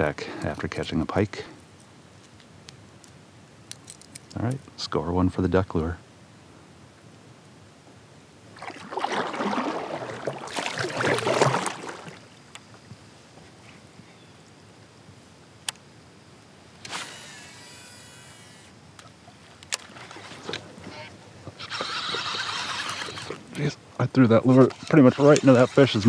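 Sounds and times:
paddle strokes splashing water: 8.5s - 12.4s, 19.3s - 23.5s
sharp reel clicks: 16.8s - 18.7s, 21.6s - 23.4s
fishing reel whirring: 16.8s - 18.8s, 20.9s - 23.4s.

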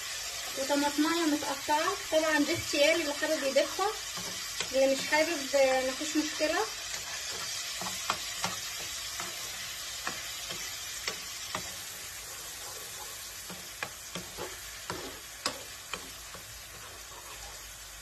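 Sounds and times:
sauce sizzling in a pan: 0.0s - 18.0s
spoon knocking against pan: 6.9s - 11.9s.

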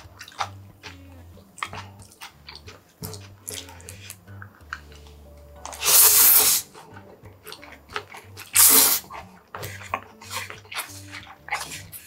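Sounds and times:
wet chewing clicks and smacks: 0.0s - 12.0s
noodles slurped loudly: 5.6s - 12.0s.

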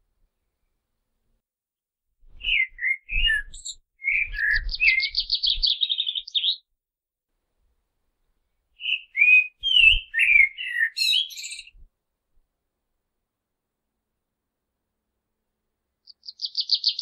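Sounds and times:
blackbird singing: 2.4s - 6.6s, 8.8s - 11.8s, 16.0s - 17.0s.

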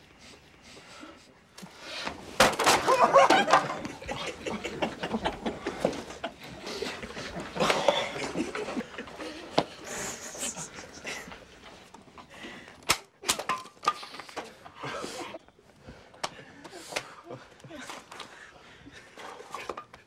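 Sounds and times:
wooden chair cracking and breaking: 2.4s - 3.8s
men laughing and shouting: 2.6s - 11.5s
stifled snickering: 2.8s - 11.5s.

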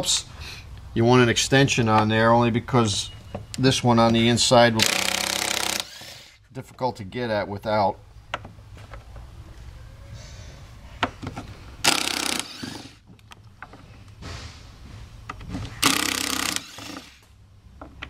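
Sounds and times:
cordless drill whirring: 4.8s - 6.4s, 11.8s - 13.0s, 15.8s - 17.3s.

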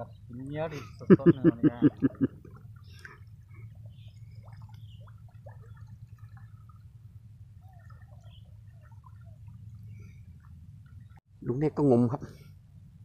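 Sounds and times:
water sloshing and dripping: 0.0s - 11.2s
small splashes: 1.8s - 11.2s.

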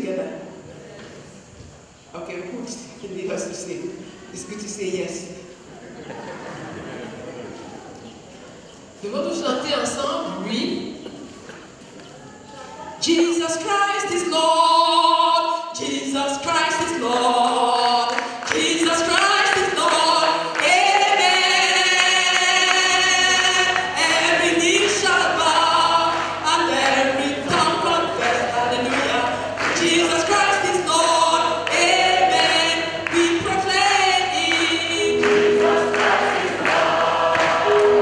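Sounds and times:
woman singing into microphone: 13.0s - 36.0s
congregation singing: 13.0s - 38.0s.

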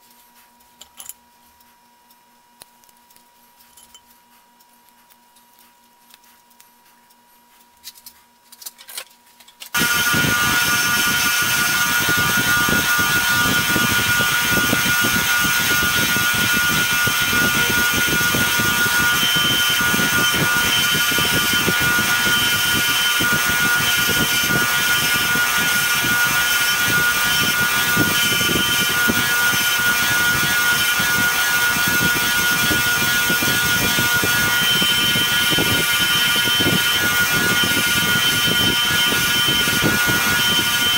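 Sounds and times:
wire wheel whining: 9.7s - 40.9s.

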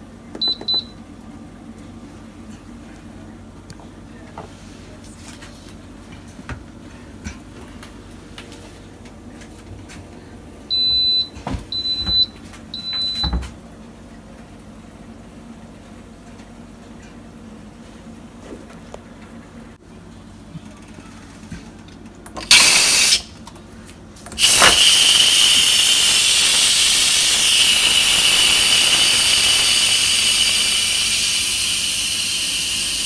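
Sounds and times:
pressure cooker beeping: 0.4s - 1.0s, 10.7s - 13.3s, 22.5s - 23.3s, 24.4s - 33.0s.

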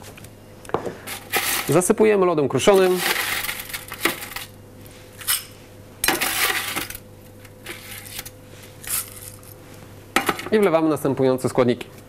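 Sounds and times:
crushed ice pouring into glass: 2.7s - 4.5s.

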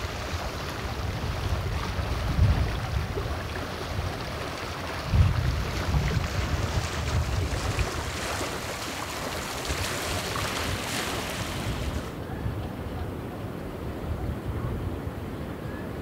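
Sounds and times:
wind buffeting microphone: 0.0s - 16.0s
airy wind rush: 5.0s - 16.0s.

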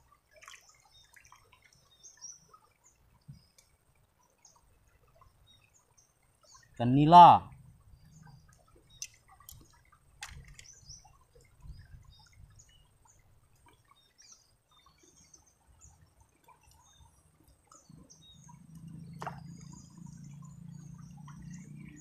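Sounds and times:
river trickling over stones: 0.0s - 22.0s
small high ticks: 8.2s - 11.6s, 13.0s - 22.0s
low steady rumble: 17.9s - 22.0s.

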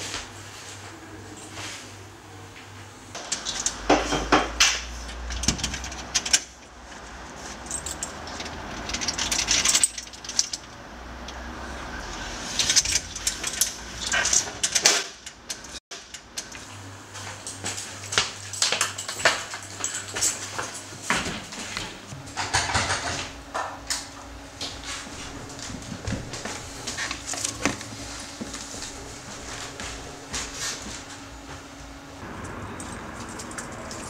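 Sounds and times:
low hum: 22.0s - 34.0s
knocks and rustles: 24.6s - 31.7s.

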